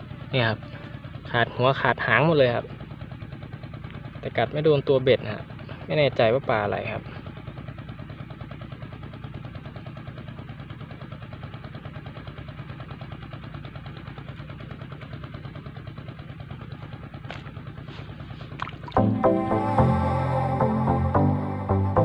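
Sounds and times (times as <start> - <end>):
small engine running: 0.0 - 22.0.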